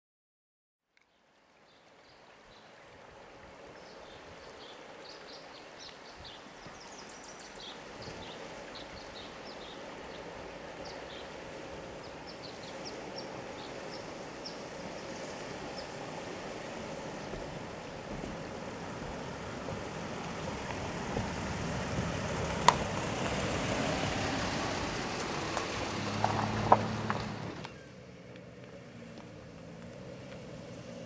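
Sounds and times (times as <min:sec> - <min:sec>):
small birds chirping: 0:03.8 - 0:11.4, 0:12.0 - 0:16.0
truck crossing wooden bridge: 0:09.2 - 0:31.0
pickup engine hum: 0:09.4 - 0:31.0.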